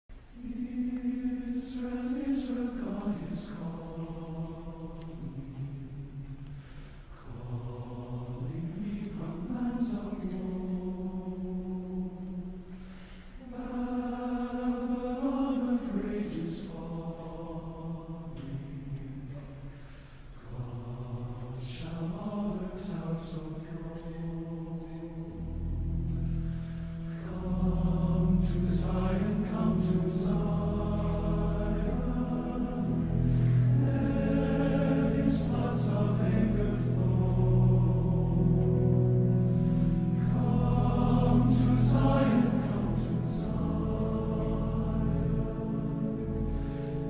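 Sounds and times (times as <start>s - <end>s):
slow chant-like singing: 0.2s - 47.0s.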